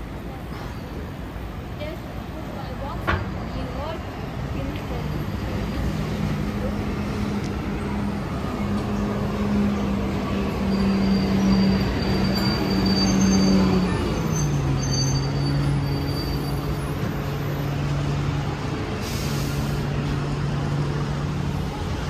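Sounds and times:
street traffic: 0:00.0 - 0:22.0
heavy vehicle engine running: 0:04.8 - 0:22.0.

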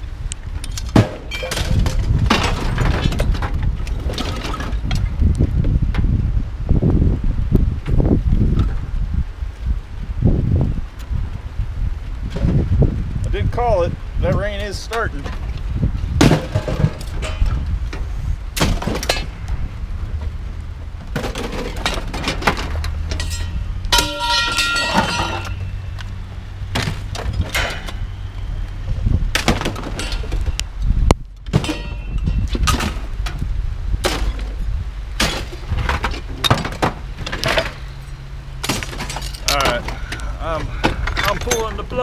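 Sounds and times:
scrap metal crashing and clanking: 0:00.8 - 0:04.9, 0:16.2 - 0:17.6, 0:18.6 - 0:19.4, 0:21.1 - 0:25.8, 0:26.8 - 0:28.1, 0:29.3 - 0:30.6, 0:31.5 - 0:33.2, 0:35.2 - 0:42.0.

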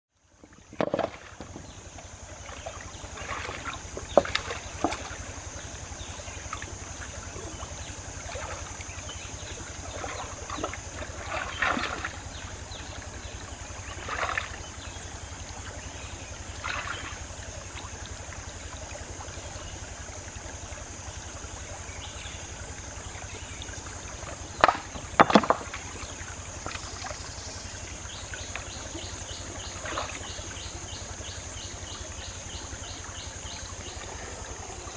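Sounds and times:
water splashes: 0:00.4 - 0:34.9
stones knocking: 0:24.6 - 0:25.8.

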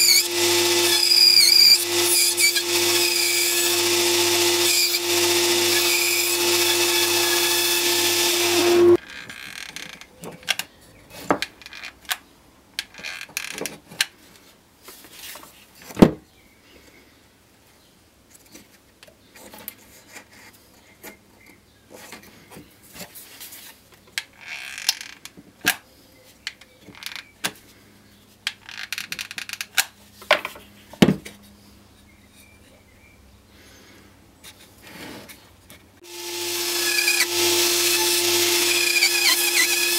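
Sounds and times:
bandsaw humming: 0:00.0 - 0:09.0, 0:36.0 - 0:39.9.

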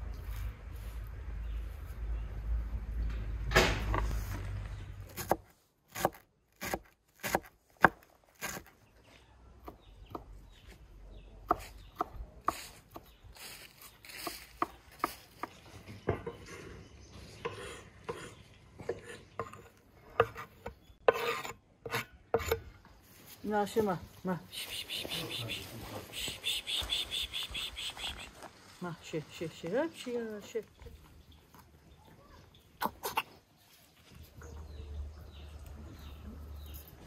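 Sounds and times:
knife scraping board: 0:17.5 - 0:22.6.

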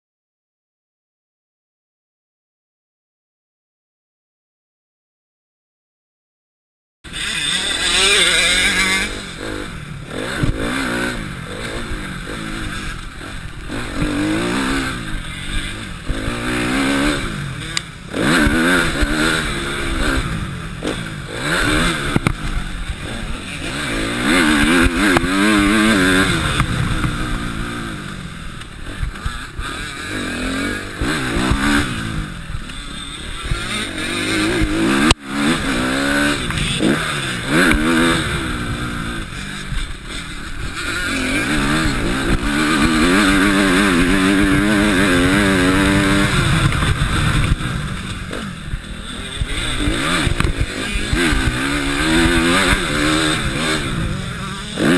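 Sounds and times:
motocross bike engine revving: 0:07.1 - 0:54.9.

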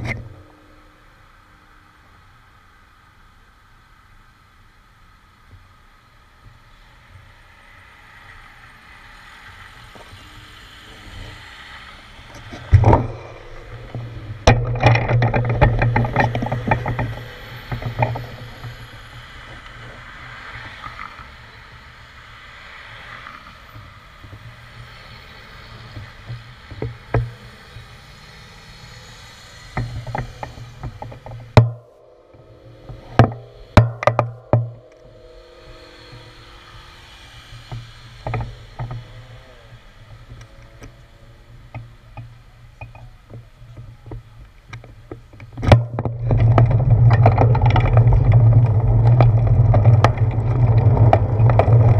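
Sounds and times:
road traffic rumble: 0:00.0 - 0:51.9
bicycle rattling: 0:07.4 - 0:51.9
bicycle knocks: 0:12.3 - 0:20.0, 0:29.7 - 0:36.8, 0:41.7 - 0:51.9.

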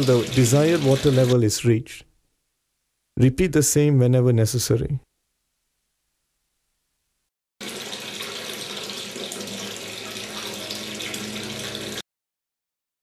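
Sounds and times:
water jetting into a tank: 0:00.0 - 0:01.4, 0:07.6 - 0:12.0.

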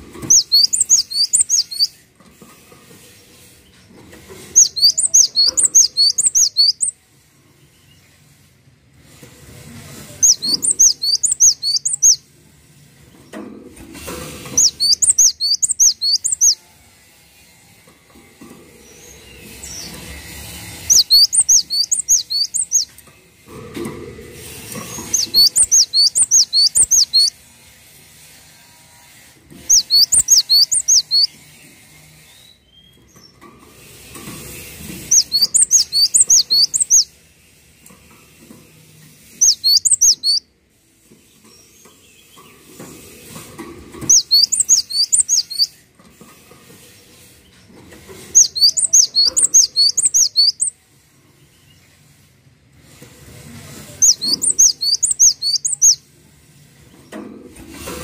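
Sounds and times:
bird singing high whistled notes: 0:00.2 - 0:02.0, 0:04.5 - 0:07.0, 0:10.2 - 0:12.2, 0:14.5 - 0:16.6, 0:20.8 - 0:22.9, 0:25.0 - 0:27.3, 0:29.7 - 0:31.4, 0:35.1 - 0:37.1, 0:39.4 - 0:40.5, 0:44.1 - 0:45.8, 0:48.3 - 0:50.8, 0:54.0 - 0:56.0.

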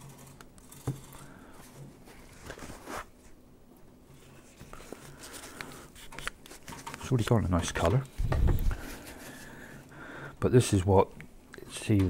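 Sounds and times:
paper towel rustling and rubbing: 0:02.0 - 0:03.4, 0:08.5 - 0:09.7.

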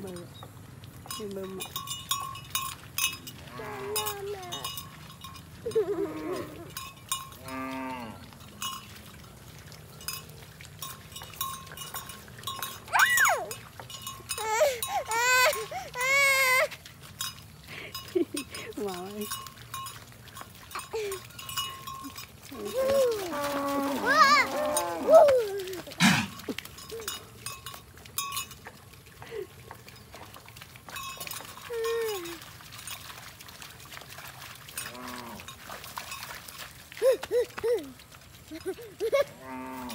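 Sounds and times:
cowbells clinking: 0:00.0 - 0:39.9
calves bawling: 0:05.6 - 0:06.8, 0:14.3 - 0:16.8, 0:22.5 - 0:27.1
cow falling call: 0:22.6 - 0:26.5.

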